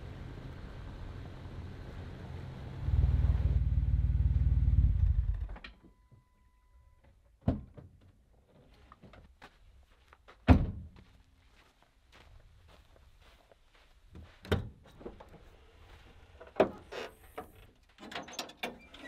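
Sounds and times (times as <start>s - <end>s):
short steady beep: 5.9s - 7.0s.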